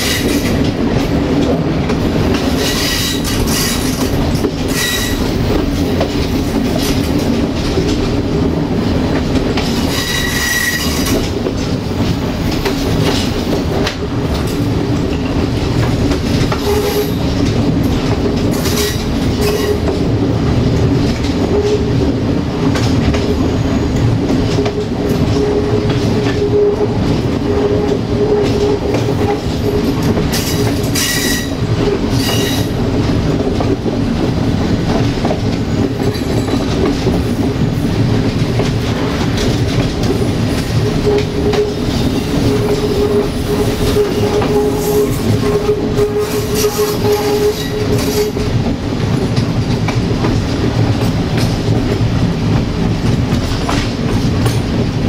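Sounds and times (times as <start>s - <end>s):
train wheels clicking over rail joints: 0.0s - 55.0s
wheels squealing: 9.9s - 11.2s.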